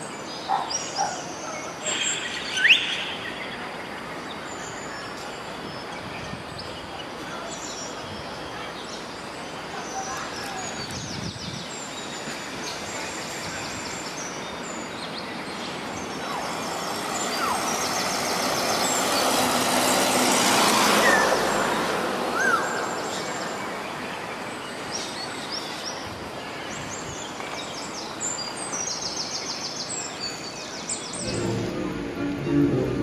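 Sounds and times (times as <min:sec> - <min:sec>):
whistled bird calls: 0:01.9 - 0:03.5
vehicle passing: 0:31.1 - 0:33.0.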